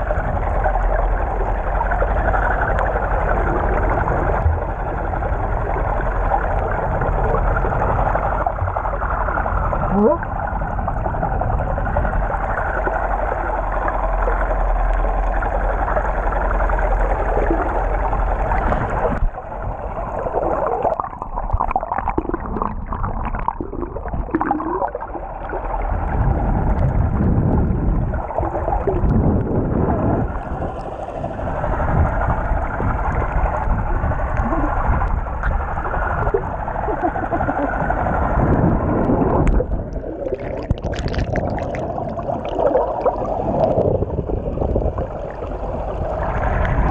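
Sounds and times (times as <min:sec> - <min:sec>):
bubbles bubbling: 0:00.0 - 0:30.8, 0:31.9 - 0:46.9
underwater rushing and gurgling: 0:00.0 - 0:46.9.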